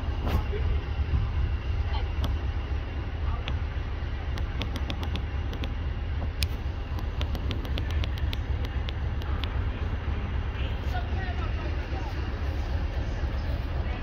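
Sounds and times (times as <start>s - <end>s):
diesel locomotive idling: 0.0s - 14.0s
sharp clicks: 4.3s - 5.8s, 6.4s - 9.6s.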